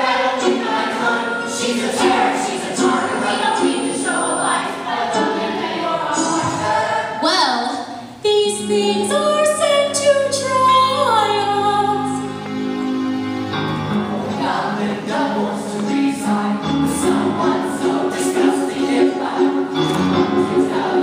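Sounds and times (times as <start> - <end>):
piano and guitar accompaniment: 0.0 - 6.9, 9.0 - 21.0
group of singers: 0.0 - 7.2, 13.6 - 21.0.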